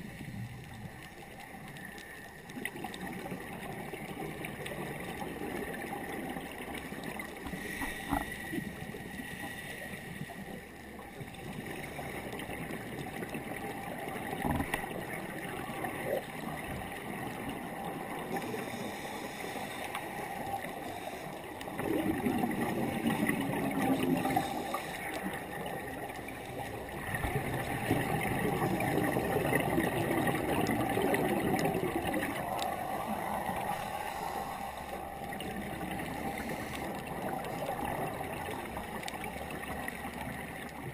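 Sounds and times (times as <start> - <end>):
gurgling water noise: 0.0 - 40.9
scuba breathing through regulator: 18.3 - 21.6, 24.2 - 25.3, 32.4 - 37.4
bubbling exhalations: 20.2 - 25.6, 26.3 - 38.8.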